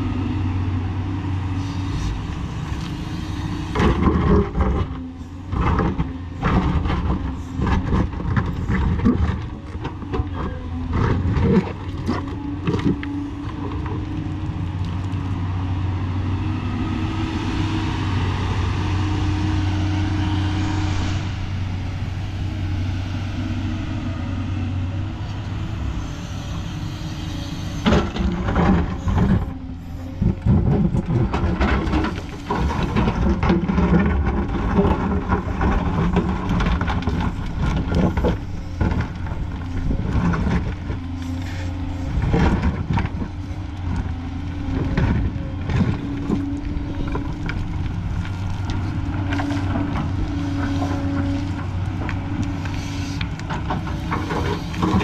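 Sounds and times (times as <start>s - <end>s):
diesel engine running: 0.0s - 55.0s
bucket scraping stony soil: 26.0s - 55.0s.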